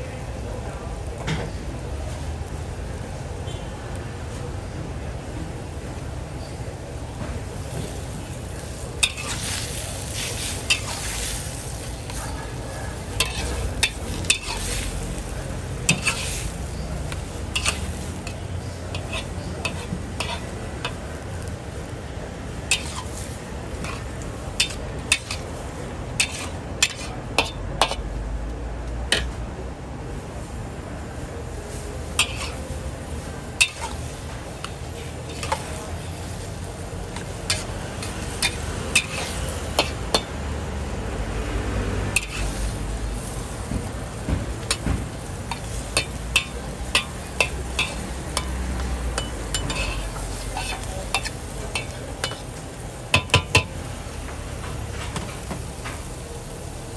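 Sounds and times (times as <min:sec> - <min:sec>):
food sizzling: 0:07.4 - 0:28.0, 0:30.1 - 0:56.9
metal spatula clinking on wok: 0:13.2 - 0:14.8, 0:17.1 - 0:21.0, 0:32.2 - 0:32.6, 0:45.5 - 0:52.5.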